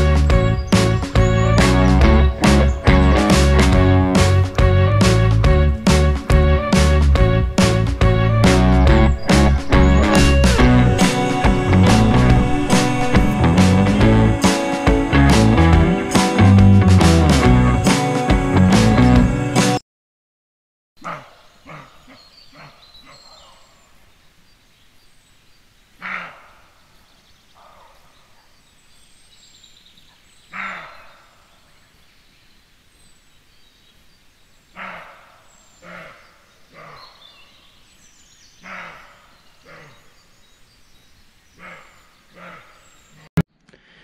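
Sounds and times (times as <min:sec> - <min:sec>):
faint bird chirps: 0:08.7 - 0:13.4, 0:21.1 - 0:43.3
deer barking: 0:21.0 - 0:23.8, 0:26.0 - 0:26.7, 0:27.6 - 0:28.5, 0:30.5 - 0:31.4, 0:34.8 - 0:37.2, 0:38.6 - 0:40.1, 0:41.6 - 0:43.0.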